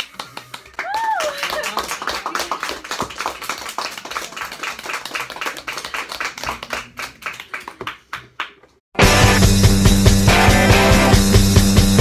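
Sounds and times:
people clapping: 0:00.0 - 0:08.8.

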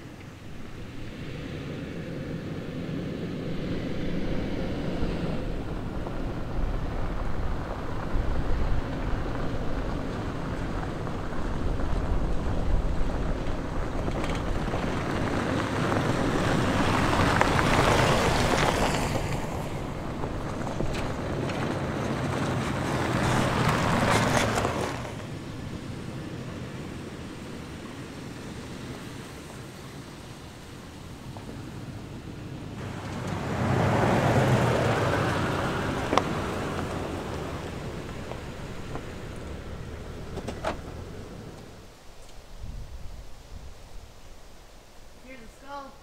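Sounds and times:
vehicle engine hum: 0:00.0 - 0:46.0
tyres on gravel: 0:04.0 - 0:46.0.

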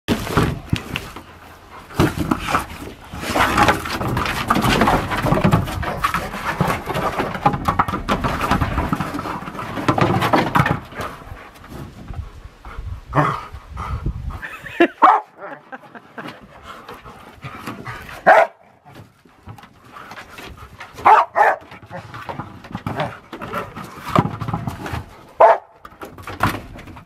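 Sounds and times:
dogs' noises: 0:14.4 - 0:19.1, 0:19.9 - 0:23.8, 0:24.9 - 0:25.8.

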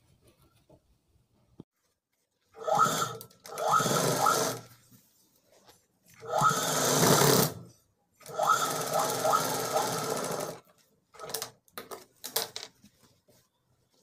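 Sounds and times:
sewing machine stitching: 0:02.6 - 0:04.7, 0:06.2 - 0:10.6.

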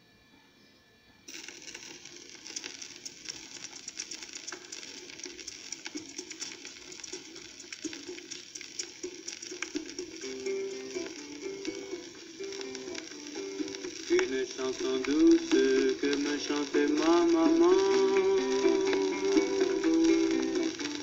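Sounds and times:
record surface hiss and crackle: 0:00.0 - 0:21.0.

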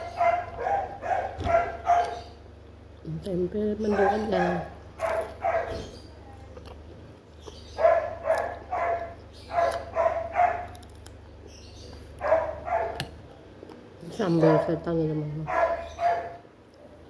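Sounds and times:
dog barking: 0:00.0 - 0:02.3, 0:03.8 - 0:06.0, 0:07.8 - 0:10.8, 0:12.2 - 0:13.1, 0:14.3 - 0:14.8, 0:15.4 - 0:16.4
low steady hum: 0:00.0 - 0:17.0.

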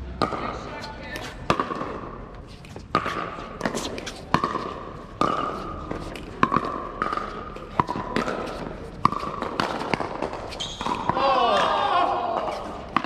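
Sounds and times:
paddles striking plastic ball: 0:02.8 - 0:11.2.

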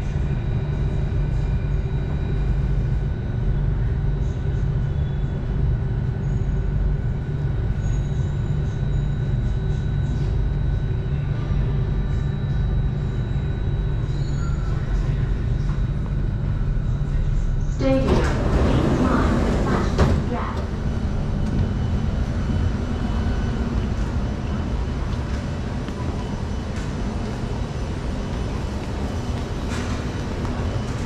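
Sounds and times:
train rumbling in tunnel: 0:00.0 - 0:31.0.

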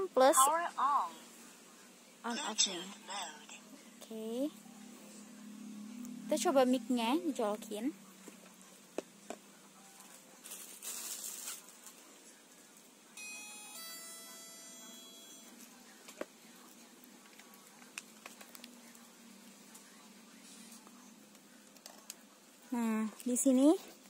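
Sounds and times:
handling rustle: 0:10.0 - 0:12.1
two-note electronic chime: 0:13.2 - 0:15.6.

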